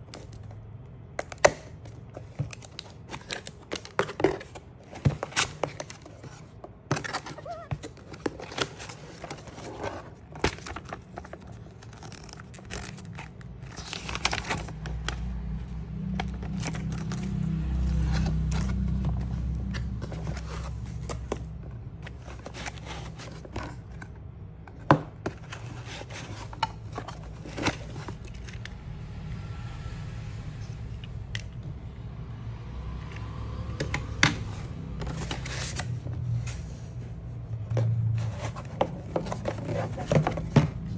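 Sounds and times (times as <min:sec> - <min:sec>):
cardboard scraping and rubbing: 0:04.0 - 0:14.7, 0:16.4 - 0:28.6, 0:34.4 - 0:40.9.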